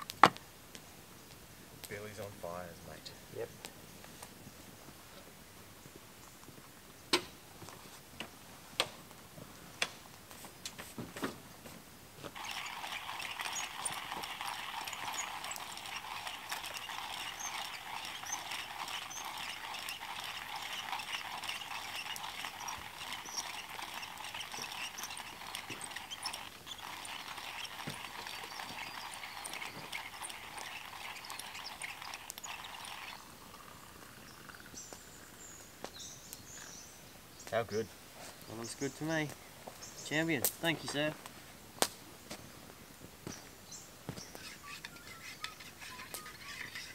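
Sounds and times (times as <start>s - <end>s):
water boiling hard: 12.3s - 34.3s.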